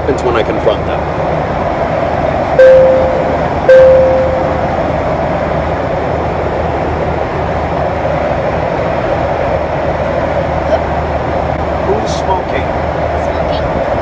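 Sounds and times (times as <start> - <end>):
airliner cabin drone: 0.0 - 14.0
flight attendant call chime: 2.6 - 4.9.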